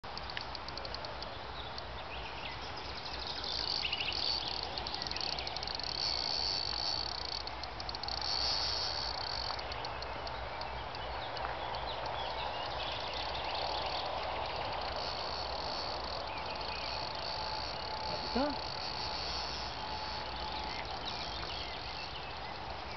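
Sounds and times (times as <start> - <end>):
crickets chirping: 0.0 - 22.9.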